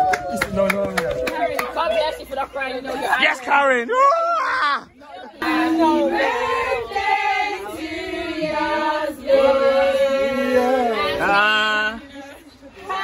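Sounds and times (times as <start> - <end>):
group singing long notes: 5.4 - 13.0.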